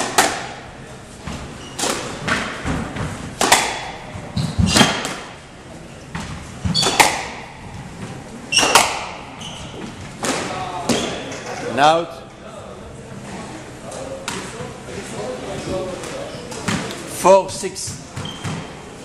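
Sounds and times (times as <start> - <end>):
squash ball cracks: 0.0 - 0.6, 1.8 - 5.4, 6.7 - 7.6, 8.5 - 9.4, 10.2 - 11.1
shoes squeaking on wooden floor: 1.2 - 1.9, 4.1 - 4.9, 8.0 - 10.2, 17.9 - 18.7.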